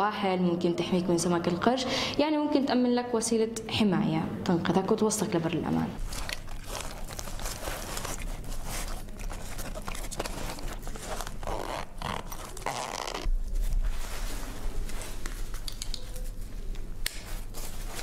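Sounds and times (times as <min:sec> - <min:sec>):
nylon straps rustling: 0:06.0 - 0:18.0.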